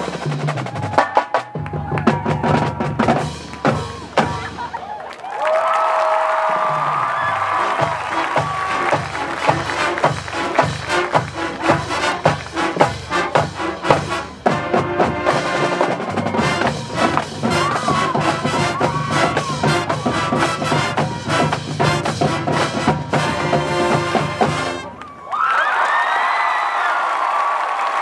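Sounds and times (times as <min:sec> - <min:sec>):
drumline beating: 0:00.0 - 0:25.0
brass section chords: 0:07.2 - 0:25.0.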